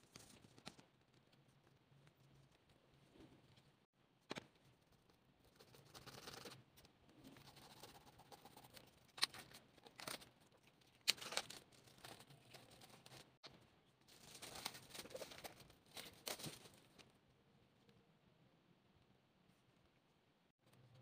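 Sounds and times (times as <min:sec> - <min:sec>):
paper and card rustling: 0:08.4 - 0:13.4, 0:14.1 - 0:17.0.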